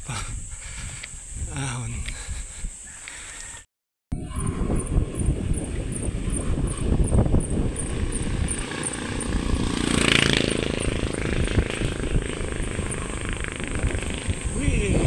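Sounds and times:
wind rumbling on microphone: 0:00.0 - 0:15.0
motorcycle engine running: 0:04.7 - 0:15.0.

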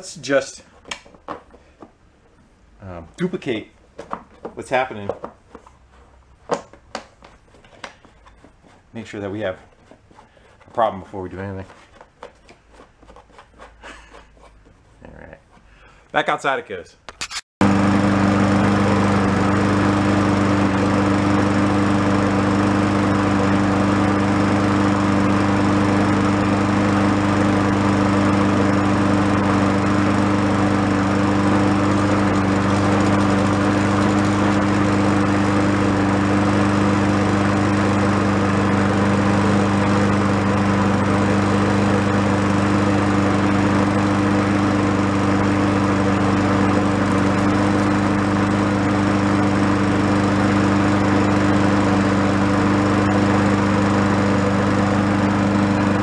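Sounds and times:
lawn mower engine running: 0:17.6 - 0:56.0.

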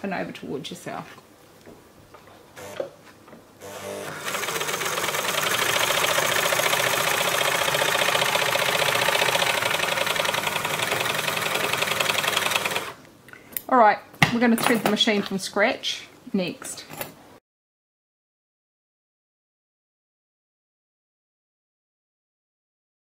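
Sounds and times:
overlocker motor stitching: 0:02.6 - 0:02.8, 0:03.6 - 0:13.0.

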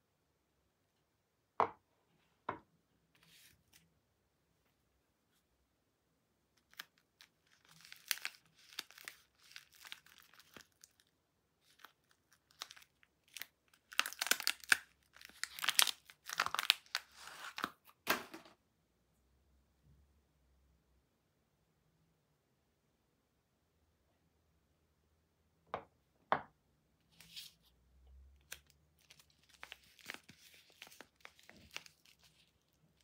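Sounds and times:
wrapper tearing and crinkling: 0:06.6 - 0:17.8, 0:28.5 - 0:33.0.

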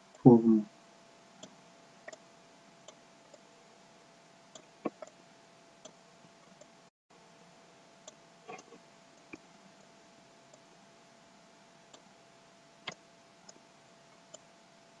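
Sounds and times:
faint steady hum: 0:00.0 - 0:15.0
computer mouse clicks: 0:04.5 - 0:05.2, 0:08.5 - 0:09.4, 0:12.8 - 0:13.6.

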